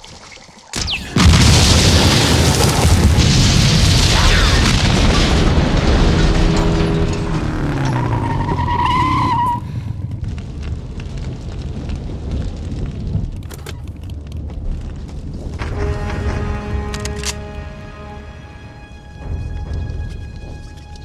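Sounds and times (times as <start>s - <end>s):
fire crackling: 0.6s - 16.9s, 18.9s - 21.0s
explosion rumble: 0.9s - 8.6s, 9.4s - 16.6s
tire squealing: 6.4s - 10.0s.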